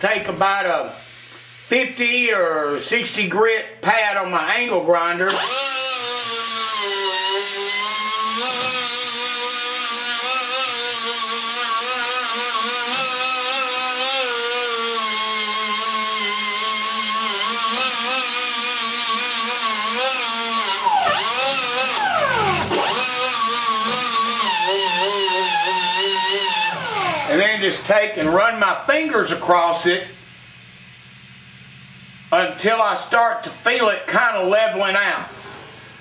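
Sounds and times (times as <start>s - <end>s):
angle grinder sanding metal: 5.3s - 27.7s.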